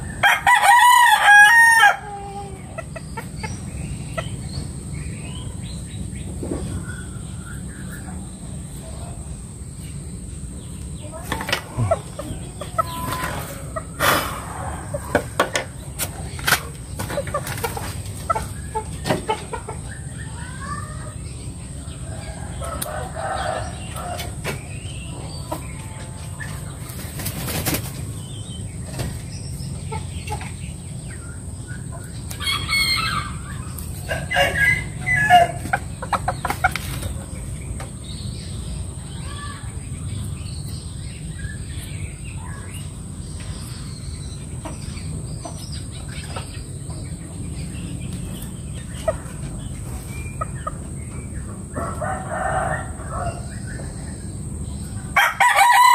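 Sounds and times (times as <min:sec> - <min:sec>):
rooster crowing: 0:00.1 - 0:02.4, 0:22.1 - 0:24.4, 0:51.8 - 0:53.6, 0:55.2 - 0:55.9
rooster clucking: 0:00.2 - 0:04.6, 0:11.0 - 0:20.1, 0:31.9 - 0:37.5
wings flapping: 0:26.8 - 0:28.1.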